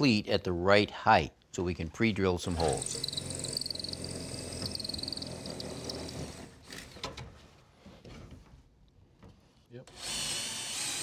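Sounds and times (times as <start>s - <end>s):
cordless drill boring into wood: 2.6s - 6.6s, 9.9s - 11.0s.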